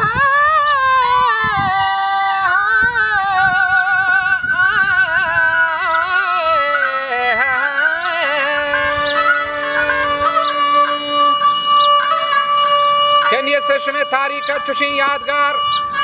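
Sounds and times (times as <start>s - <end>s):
bowed fiddle melody: 0.0s - 16.0s
steady held tones: 0.0s - 16.0s
plucked lute accompaniment: 6.3s - 16.0s.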